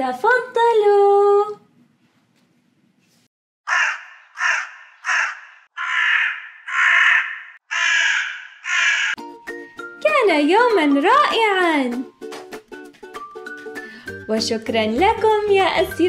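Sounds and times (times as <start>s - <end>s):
crows cawing: 3.7s - 9.2s.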